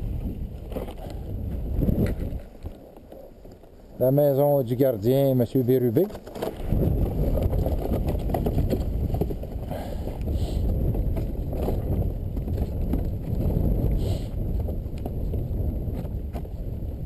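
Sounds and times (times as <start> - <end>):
sled runners scraping on snow: 0.0 - 17.0
wind on microphone: 0.0 - 17.0.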